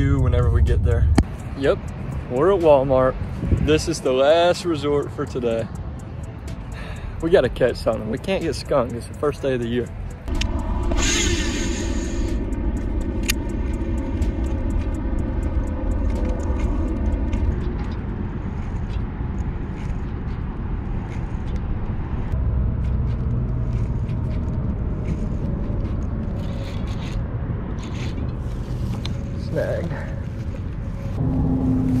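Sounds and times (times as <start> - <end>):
wind on microphone: 0.0 - 4.1
steady droning hum: 0.0 - 32.0.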